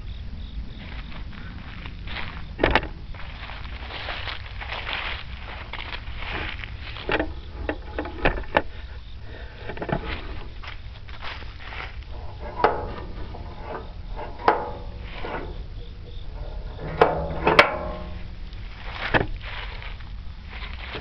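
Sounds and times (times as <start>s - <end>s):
low steady rumble: 0.0s - 21.0s
footsteps on dry leaves: 0.8s - 7.1s, 10.0s - 12.4s, 18.1s - 21.0s
clicks and knocks on metal frame: 2.6s - 3.0s, 6.9s - 8.7s, 12.1s - 19.5s.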